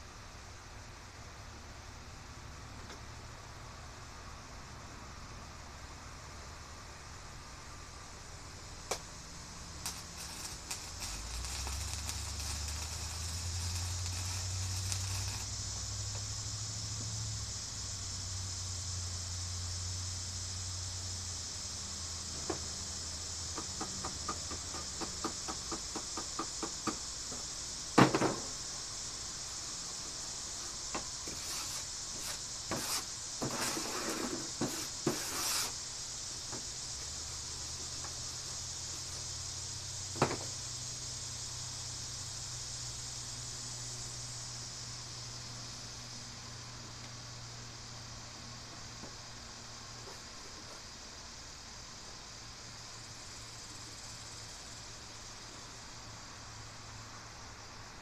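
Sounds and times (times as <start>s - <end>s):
steady hiss: 0.0s - 58.0s
welding arc sizzling: 8.9s - 21.0s, 30.5s - 44.6s.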